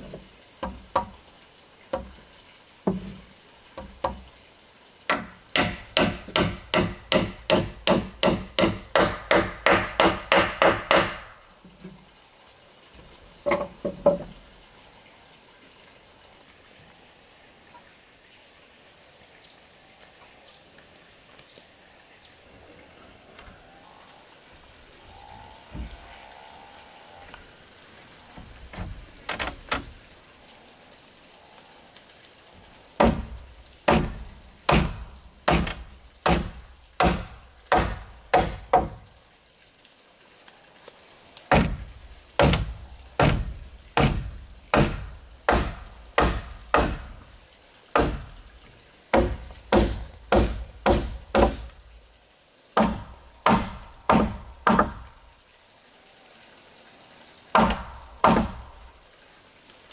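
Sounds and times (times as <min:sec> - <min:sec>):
hand tool striking timber: 0:05.1 - 0:11.3, 0:33.0 - 0:33.3, 0:33.9 - 0:39.0, 0:42.4 - 0:47.2, 0:48.0 - 0:48.3, 0:49.1 - 0:51.7, 0:52.8 - 0:55.0, 0:57.6 - 0:58.6.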